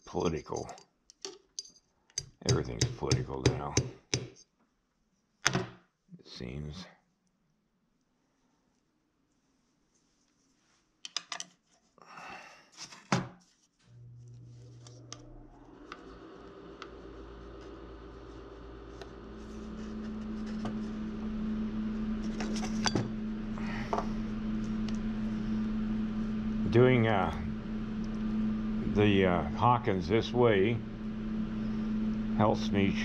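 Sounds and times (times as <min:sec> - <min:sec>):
steady machine hum: 0:13.9 - 0:33.0.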